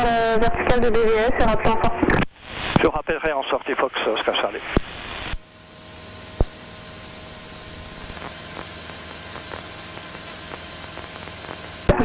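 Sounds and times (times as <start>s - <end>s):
aircraft engine and propeller drone: 5.0s - 11.9s.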